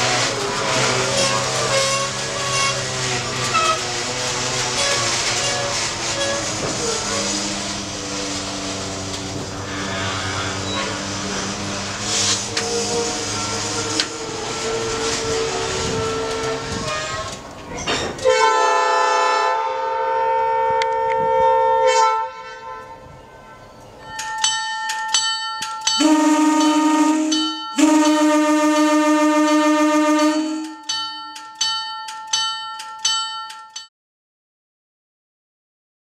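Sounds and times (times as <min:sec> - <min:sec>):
train horn blast: 0:00.0 - 0:17.4, 0:18.2 - 0:23.2, 0:26.0 - 0:30.8
train rumbling on track: 0:00.0 - 0:33.8
train bell ringing: 0:23.0 - 0:28.2, 0:30.4 - 0:33.9.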